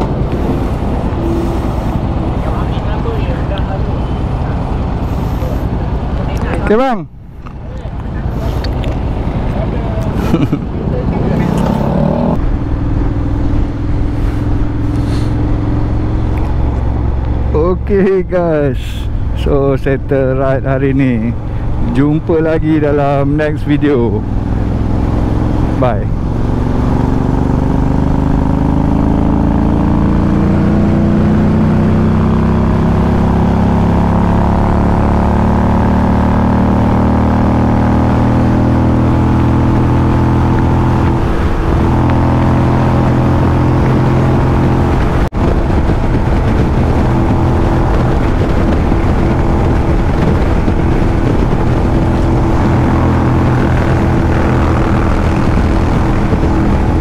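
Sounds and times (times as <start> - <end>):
wind noise: 0.0 - 57.0
motorcycle engine running: 24.1 - 57.0.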